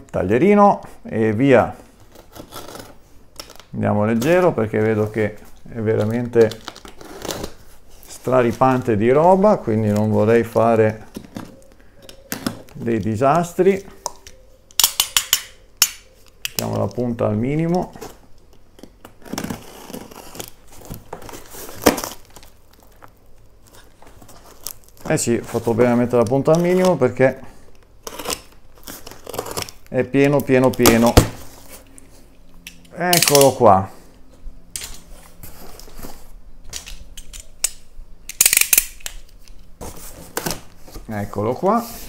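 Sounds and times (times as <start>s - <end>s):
tape tearing: 1.9s - 11.6s, 17.6s - 27.1s, 28.0s - 32.0s, 32.7s - 33.6s
cardboard flaps crinkling: 16.6s - 27.2s, 28.1s - 32.3s, 39.8s - 42.0s
box cutter slicing tape: 19.2s - 22.2s
sharp crack: 36.8s - 39.3s.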